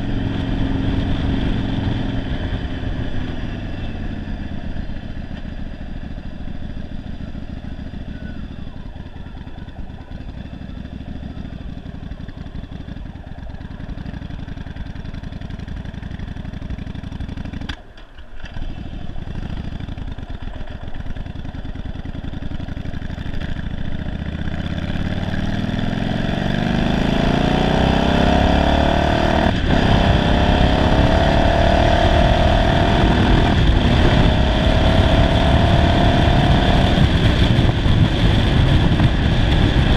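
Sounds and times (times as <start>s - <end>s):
motorcycle engine: 0.0s - 39.9s
wind noise: 26.6s - 39.9s.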